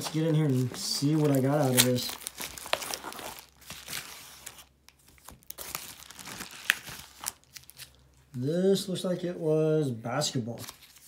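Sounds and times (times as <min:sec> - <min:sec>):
paper crinkling and tearing: 0:00.0 - 0:08.0.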